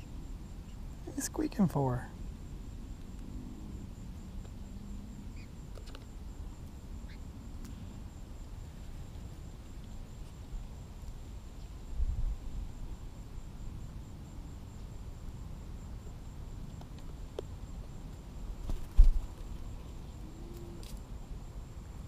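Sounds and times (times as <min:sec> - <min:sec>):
wind rumble on microphone: 0:11.8 - 0:14.4.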